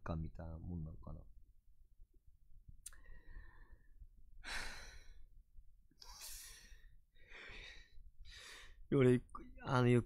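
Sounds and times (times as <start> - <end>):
man breathing: 2.9 - 8.9.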